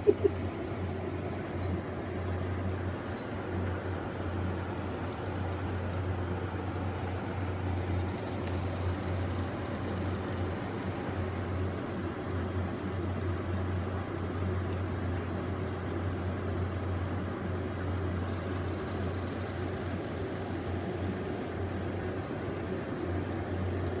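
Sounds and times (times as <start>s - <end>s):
steady low hum with hiss: 0.0s - 24.0s
faint light ticks: 8.4s - 8.9s.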